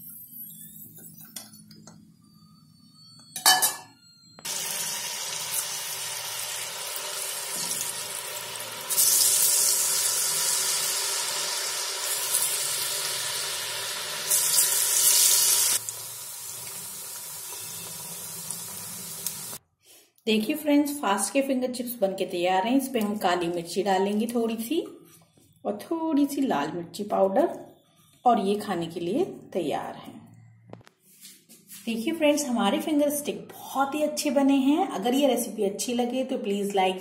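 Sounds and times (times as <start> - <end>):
potatoes sizzling in hot oil: 4.5 - 19.6.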